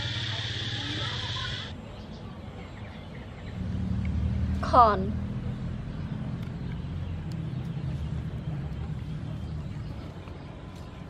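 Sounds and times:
vehicle engine running steadily: 2.8 - 11.0.

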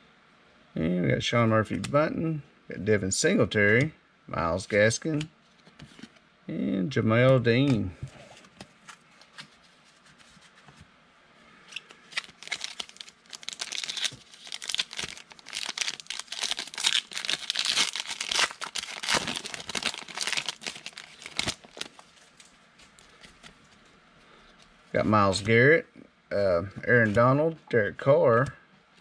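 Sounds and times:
foil wrapper tearing and crinkling: 12.1 - 22.1.

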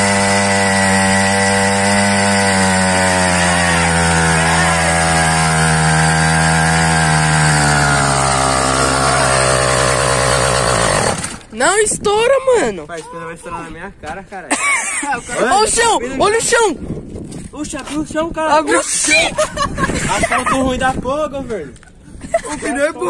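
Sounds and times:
two-stroke engine at full revs: 0.0 - 11.5.

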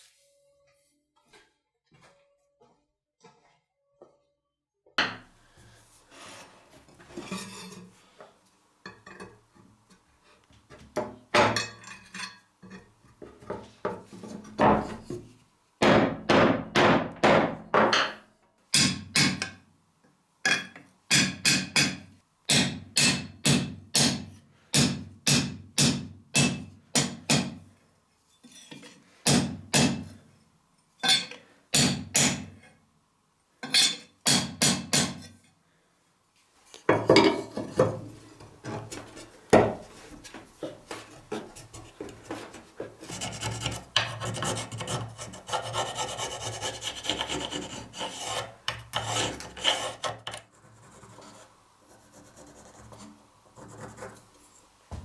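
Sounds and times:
scraping on wooden handle: 41.0 - 51.5
pencil scratching on wood: 43.0 - 54.3.

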